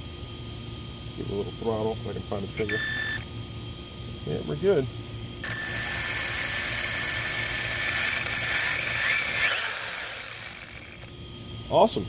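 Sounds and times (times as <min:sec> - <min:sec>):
electric motor whining: 0:05.4 - 0:11.1.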